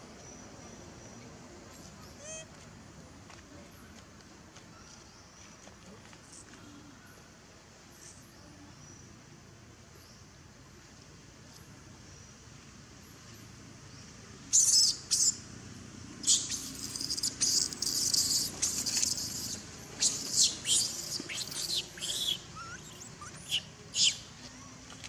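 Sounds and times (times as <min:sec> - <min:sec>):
baby monkey screaming: 0:02.2 - 0:02.5, 0:16.2 - 0:24.3.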